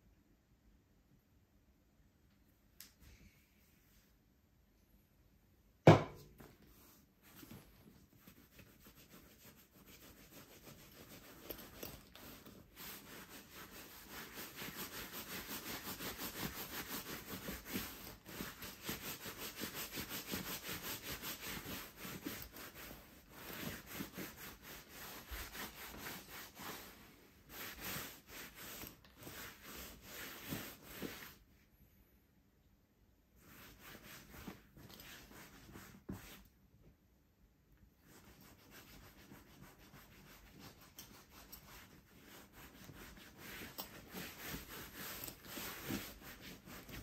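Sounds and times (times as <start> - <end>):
hands rubbing leather jacket: 6.6 - 31.4, 33.4 - 36.5, 38.0 - 47.0.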